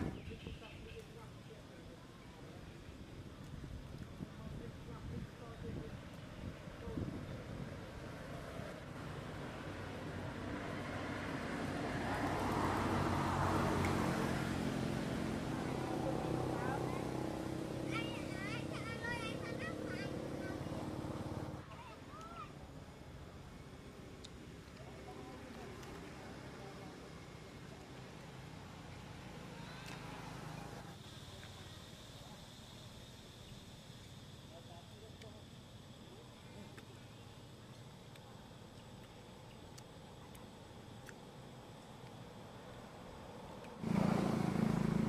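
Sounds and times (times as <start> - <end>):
vehicle engine passing by: 8.0 - 21.6, 43.7 - 45.0.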